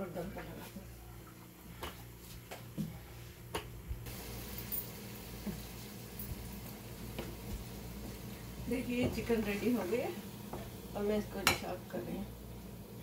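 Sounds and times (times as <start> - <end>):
chicken sizzling in a pan: 4.1 - 13.0.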